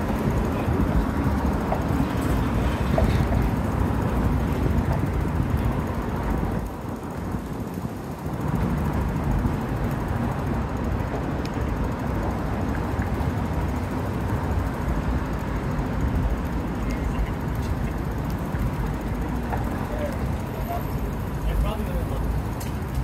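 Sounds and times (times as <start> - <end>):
city traffic rumble: 0.0 - 23.0.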